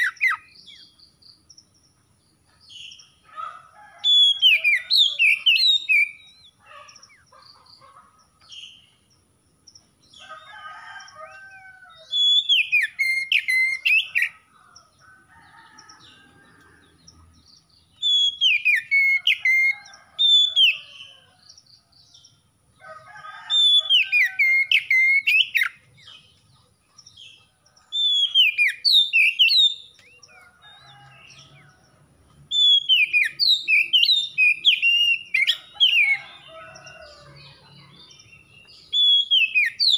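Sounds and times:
bird whistling song phrases: 4.1 - 6.6, 12.0 - 14.3, 18.0 - 20.8, 28.0 - 30.0, 32.5 - 36.2, 38.9 - 39.9.

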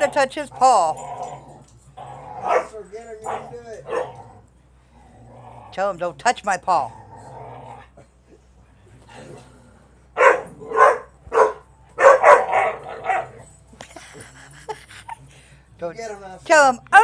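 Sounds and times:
dog barking: 2.4 - 4.2, 10.2 - 13.4.

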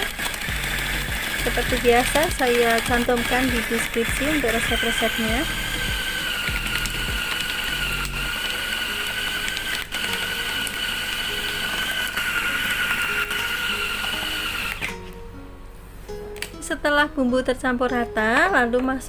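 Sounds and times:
electric food chopper whine: 0.0 - 15.0.

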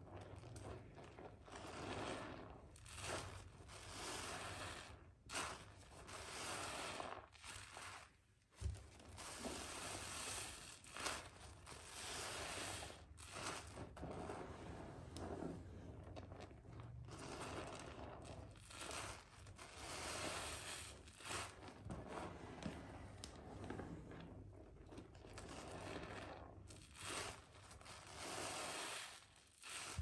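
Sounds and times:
wet squishing of soap and sponge: 0.0 - 30.0.

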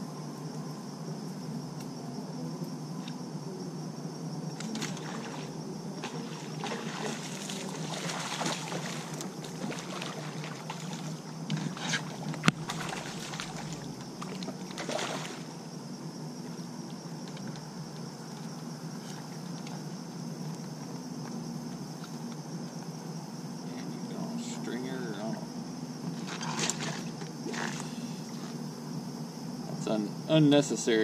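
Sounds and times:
water splashing and sloshing: 4.6 - 15.7, 26.0 - 28.5.

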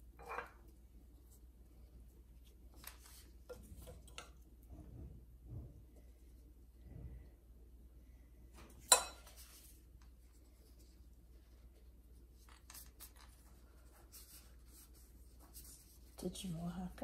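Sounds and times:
pastry rustling: 0.0 - 6.8, 8.8 - 17.0
metal spoon clinking glass bowl: 8.9 - 9.4.

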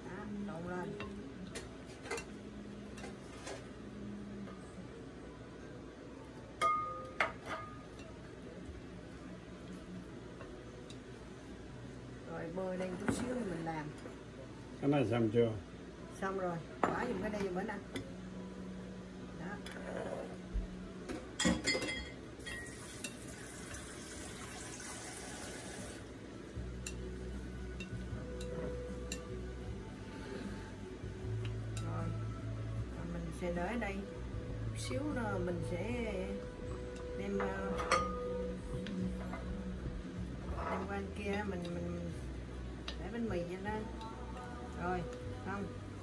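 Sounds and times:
low steady hum: 0.0 - 46.0
water running from tap: 22.6 - 26.0
spoon clinking against bowl: 36.9 - 38.4.

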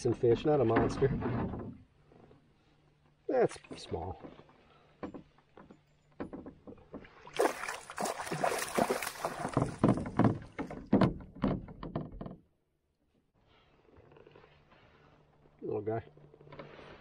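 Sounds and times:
fish splashing in a net: 7.3 - 9.8.

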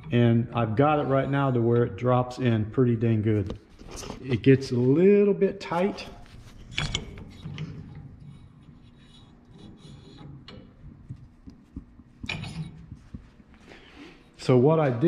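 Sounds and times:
metal pin scraping in bushing: 5.7 - 13.2.

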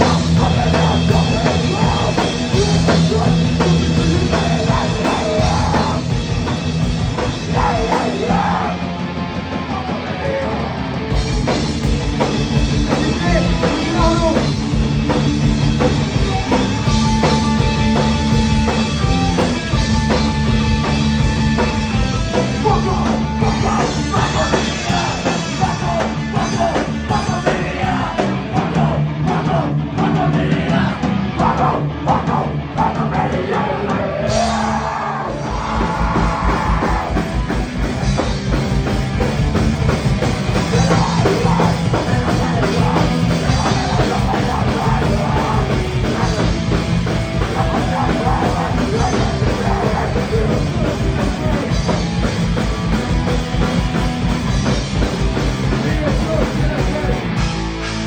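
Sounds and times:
bass guitar: 0.0 - 58.0
distorted electric guitars: 0.0 - 58.0
drum kit: 0.0 - 58.0
singer shouting into a microphone: 7.5 - 8.9, 13.1 - 14.6, 22.5 - 37.2.

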